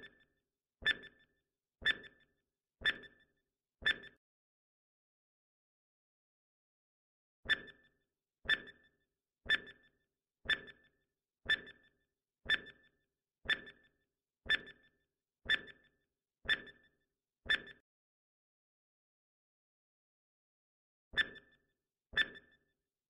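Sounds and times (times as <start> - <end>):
timer ticking: 10.5 - 10.8, 13.5 - 13.8.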